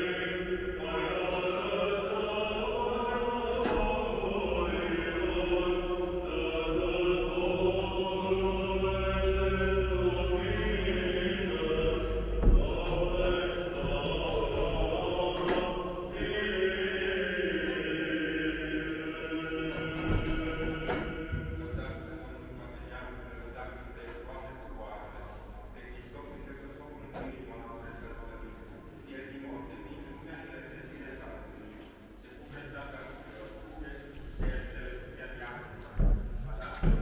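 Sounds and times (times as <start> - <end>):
choir chanting long notes: 0.0 - 23.0.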